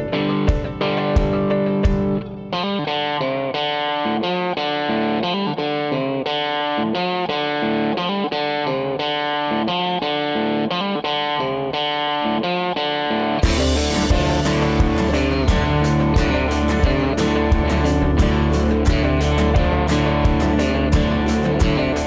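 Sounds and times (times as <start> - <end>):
electric guitar melody: 0.0 - 22.0
sharp percussive hits: 13.4 - 22.0.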